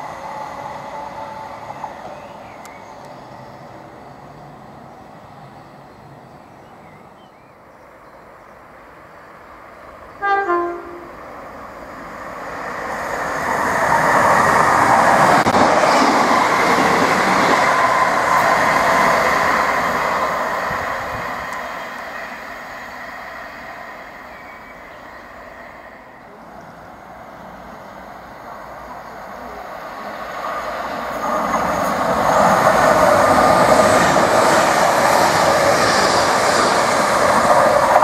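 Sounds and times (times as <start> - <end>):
passenger train passing: 0.0 - 38.0
two-tone train horn blasts: 10.2 - 11.2.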